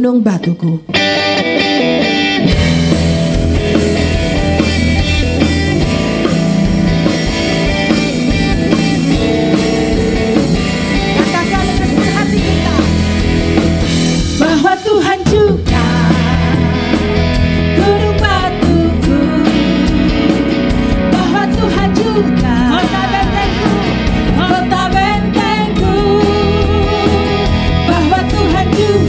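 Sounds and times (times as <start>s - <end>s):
electric guitar: 0.0s - 29.0s
electric bass guitar: 0.8s - 29.0s
drum kit: 0.9s - 29.0s
keyboard playing: 0.9s - 29.0s
woman singing: 11.2s - 12.9s, 14.4s - 16.9s, 17.7s - 29.0s.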